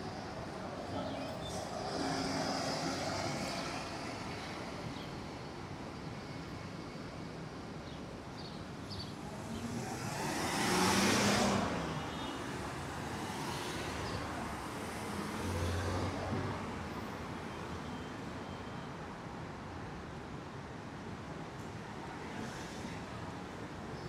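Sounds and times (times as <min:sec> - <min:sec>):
city traffic noise: 0:00.0 - 0:24.0
vehicle passing close: 0:09.4 - 0:12.0.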